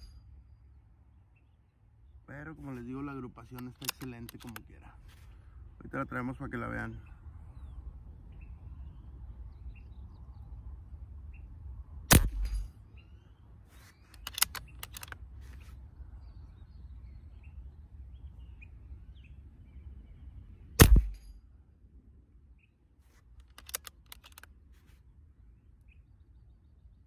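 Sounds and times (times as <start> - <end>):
light clicks: 3.5 - 4.8, 14.1 - 15.6, 23.4 - 24.5
air rifle shots: 12.1 - 12.7, 20.8 - 21.3.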